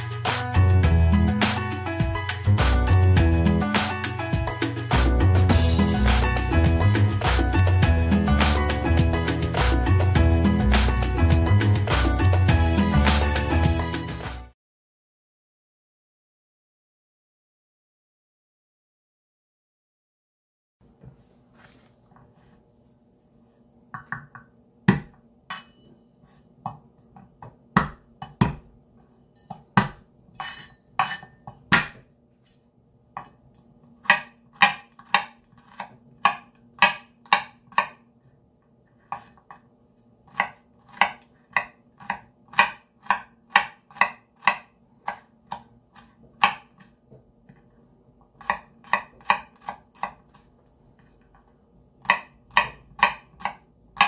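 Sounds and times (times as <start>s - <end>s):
knife chopping on wooden board: 24.0s - 25.7s, 26.6s - 28.7s, 29.5s - 32.1s, 34.0s - 38.0s, 39.1s - 39.7s, 40.3s - 47.7s, 48.3s - 54.0s.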